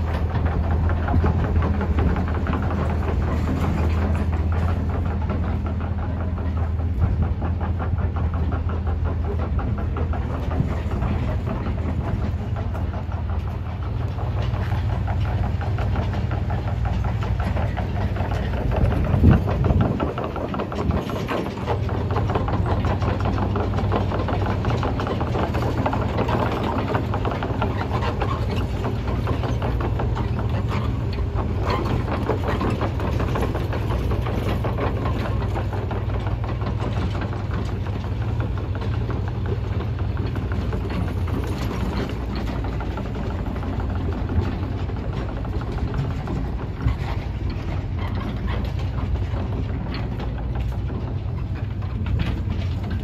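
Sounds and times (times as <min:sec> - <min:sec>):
engine idling: 0:00.0 - 0:53.0.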